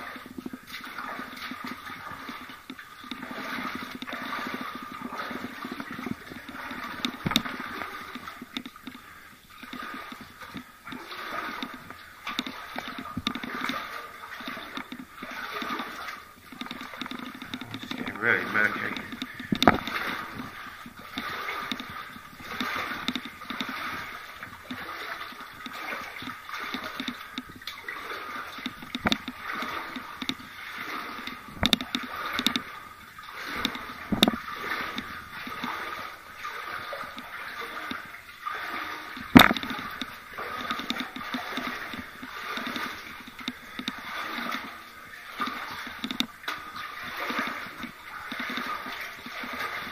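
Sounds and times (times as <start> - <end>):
footsteps splashing through water: 0.0 - 49.9
sharp knocks: 19.0 - 20.0, 39.3 - 39.7.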